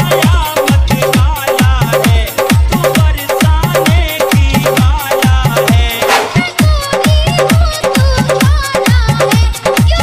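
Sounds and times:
dance song: 0:00.7 - 0:08.6
heavy electronic drum beat: 0:02.7 - 0:06.9.

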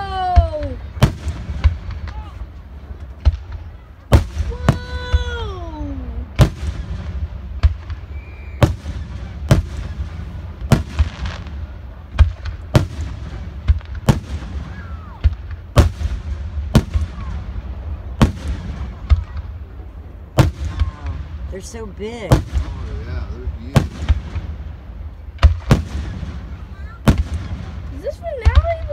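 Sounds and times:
fireworks booming: 0:00.0 - 0:28.9
steady low rumble: 0:00.8 - 0:28.9.

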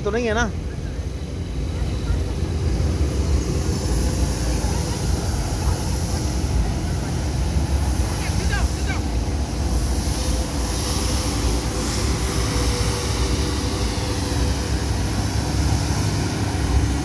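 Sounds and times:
street sweeper rumbling and hissing: 0:00.0 - 0:17.0.

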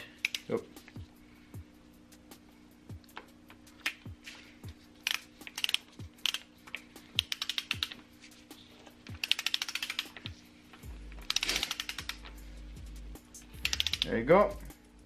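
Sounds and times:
ratchet wrench clicking: 0:05.0 - 0:06.5, 0:07.2 - 0:08.0, 0:09.1 - 0:10.2, 0:11.2 - 0:12.3, 0:13.4 - 0:14.2.

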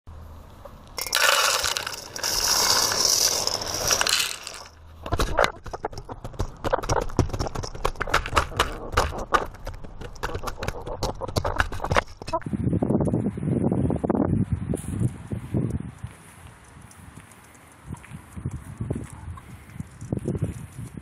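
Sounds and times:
feed pouring into a dish: 0:01.0 - 0:04.7
chickens pecking at a dish: 0:04.2 - 0:12.4.

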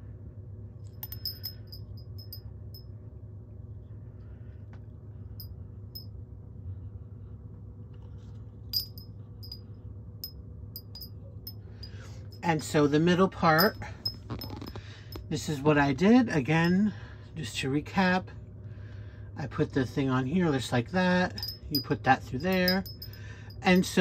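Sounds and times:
low hum: 0:00.0 - 0:19.4, 0:21.3 - 0:24.0
wind chime tubes clinking: 0:01.0 - 0:02.4, 0:08.7 - 0:09.6, 0:10.8 - 0:12.6, 0:13.5 - 0:15.2, 0:21.3 - 0:24.0.

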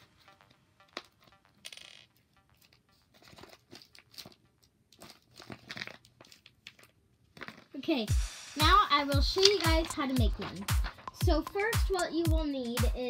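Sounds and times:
soft background music: 0:00.0 - 0:05.7, 0:08.1 - 0:13.0.

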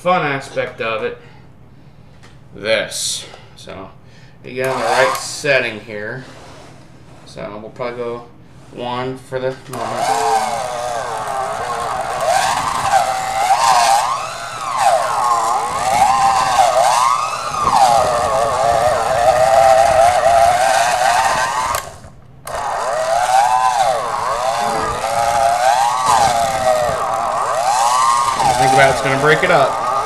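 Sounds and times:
electric hand mixer whine: 0:04.6 - 0:05.2, 0:09.7 - 0:30.0.

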